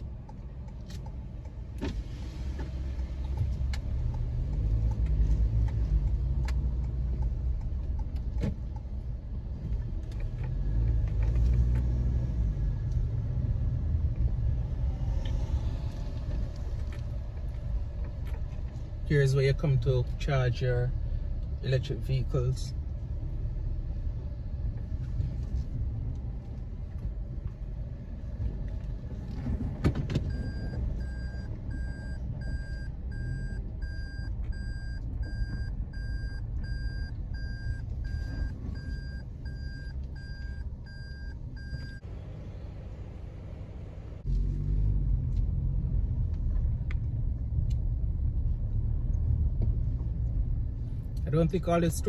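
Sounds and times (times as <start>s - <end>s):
car engine and road rumble: 0.0s - 52.0s
reverse warning beeping: 30.3s - 42.0s.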